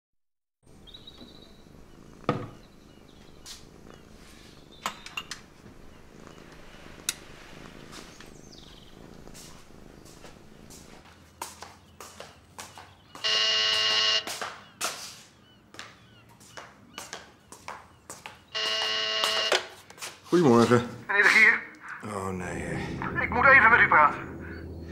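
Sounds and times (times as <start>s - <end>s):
electric door buzzer: 13.2s - 14.4s, 18.6s - 19.7s.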